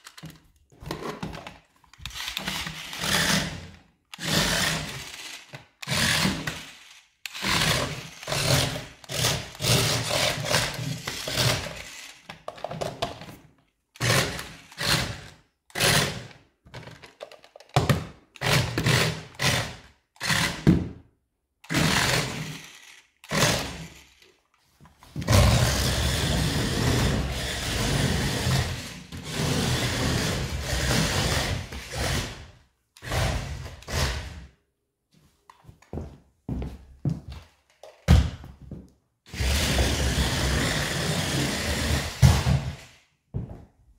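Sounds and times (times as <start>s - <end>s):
toy motor and gears whirring: 1.9s - 12.6s, 14.0s - 16.2s, 21.6s - 24.4s.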